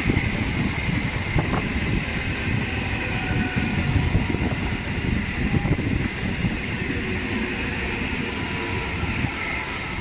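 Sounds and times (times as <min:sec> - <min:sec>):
hiss: 0:00.0 - 0:02.8, 0:07.8 - 0:10.0
train wheels rumbling on rails: 0:00.0 - 0:10.0.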